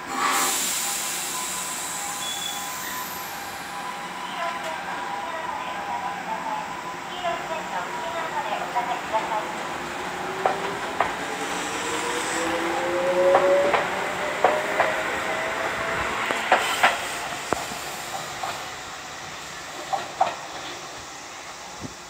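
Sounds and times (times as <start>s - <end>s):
train wheels clacking over rail joints: 10.4s - 11.6s, 13.2s - 15.1s, 16.0s - 18.6s, 19.8s - 20.8s.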